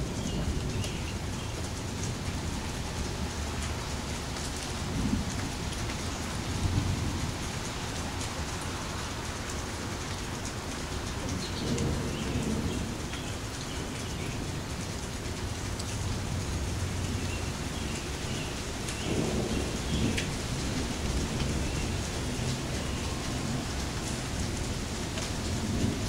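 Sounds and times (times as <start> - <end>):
steady rain falling: 0.0 - 26.0
thunder rumbling: 16.0 - 26.0.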